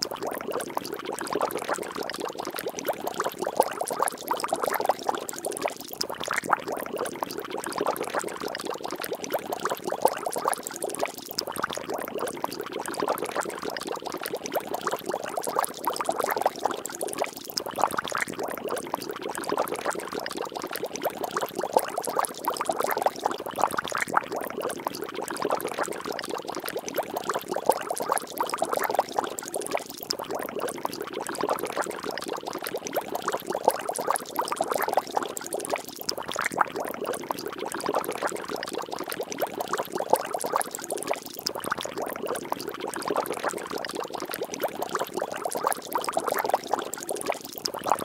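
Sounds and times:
water bubbling and splashing: 0.0 - 48.0.

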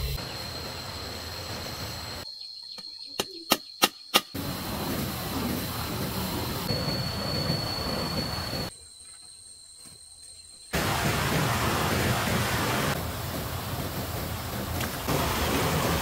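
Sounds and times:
high-pitched insect drone: 6.4 - 8.8.

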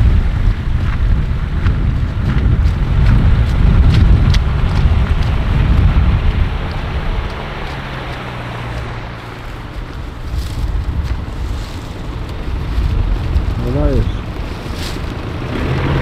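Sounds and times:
off-road vehicle engine running: 0.0 - 16.0
wind buffeting microphone: 0.0 - 16.0.

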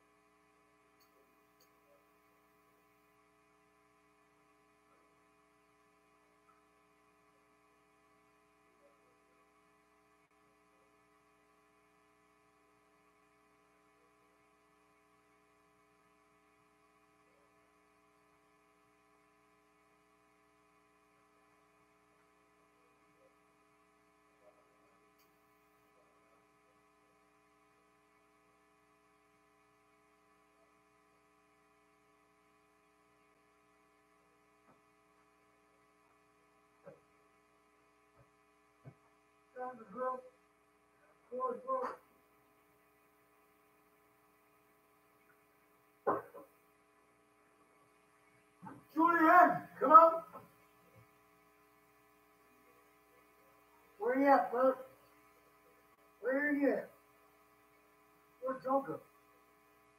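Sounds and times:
faint electrical hum: 0.0 - 59.9
faint clicks: 1.0 - 1.8.

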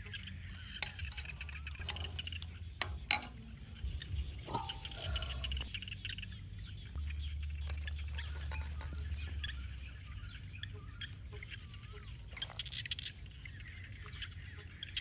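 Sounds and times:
birds chirping: 0.0 - 15.0
low steady rumble: 0.0 - 15.0.

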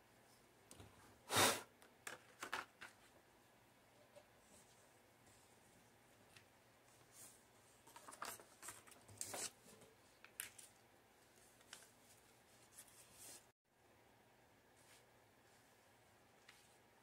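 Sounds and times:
paper rustling and crinkling: 7.0 - 13.5.

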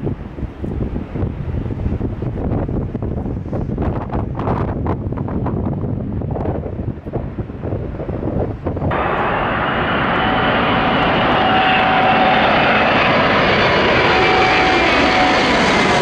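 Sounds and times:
wind buffeting microphone: 0.0 - 16.0
jet engines roaring: 8.0 - 16.0.

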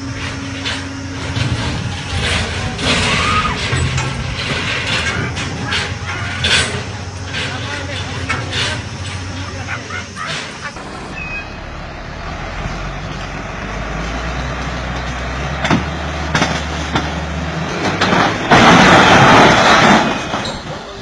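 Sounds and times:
loud noisy crash: 0.0 - 13.3, 15.6 - 21.0
truck engine running: 0.0 - 21.0.

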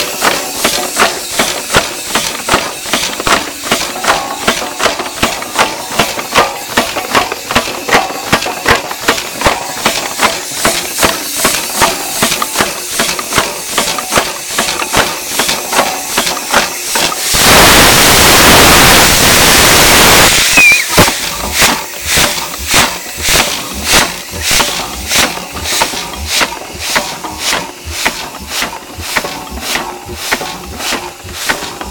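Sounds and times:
rods clanking: 0.0 - 31.9
steam engine exhaust chuffing: 0.0 - 31.9
loud air hiss: 9.8 - 31.9.

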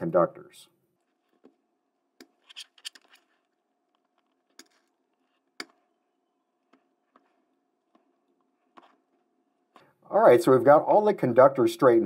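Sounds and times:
screwdriver scraping on cable: 2.2 - 5.9.

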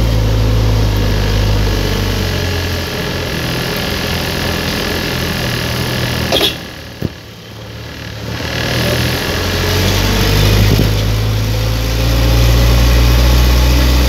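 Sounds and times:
truck engine rumble in cab: 0.0 - 14.0.

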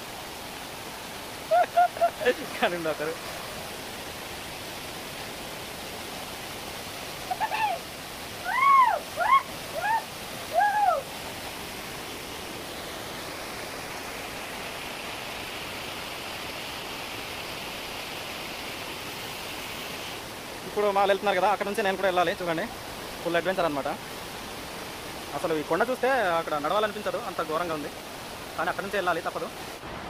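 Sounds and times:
stream flowing over rocks: 0.0 - 30.0
rising and falling calls: 8.4 - 11.1.

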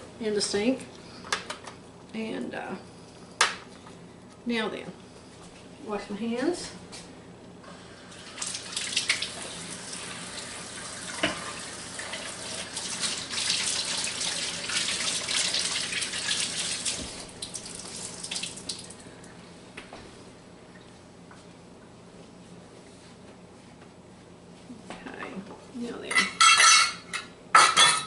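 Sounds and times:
tap running with water splashing: 8.1 - 19.0.

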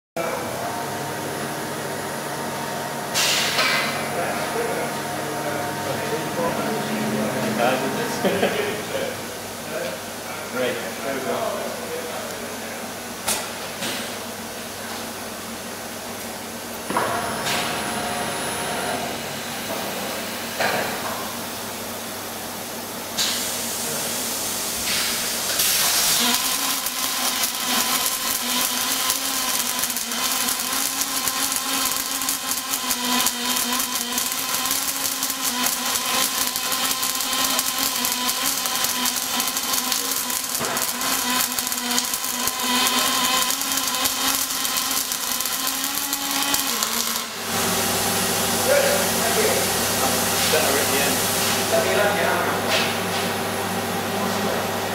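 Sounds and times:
machine hum: 0.2 - 54.9
machine hiss: 2.2 - 10.8, 23.1 - 52.4
welding arc crackling: 23.2 - 52.3.

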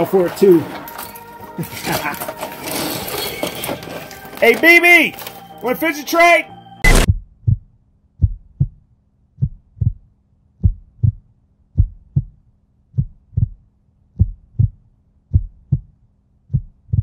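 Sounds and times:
heartbeat thumps: 6.8 - 17.0.

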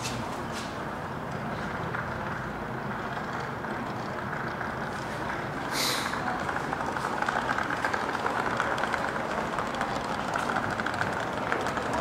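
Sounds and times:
metro station noise: 0.0 - 12.0
short hiss: 5.7 - 6.2.

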